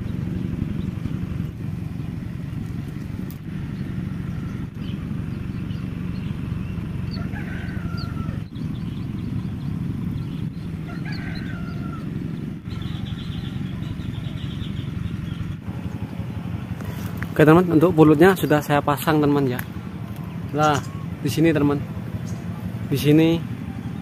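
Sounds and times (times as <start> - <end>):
low rumble: 0.0 - 24.0
rooster crowing: 7.0 - 8.6, 10.8 - 12.3.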